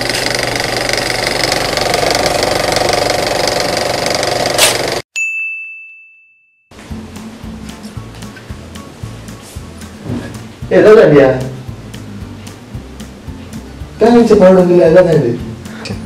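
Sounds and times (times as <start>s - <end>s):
film projector whirr and clatter: 0.0s - 5.0s
bright ding: 5.2s - 6.6s
quiet music: 6.7s - 16.0s.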